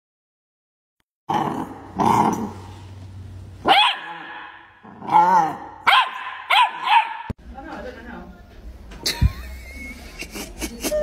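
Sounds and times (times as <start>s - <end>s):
puppy yelping barks: 3.6s - 7.3s
puppy growling: 4.8s - 5.8s.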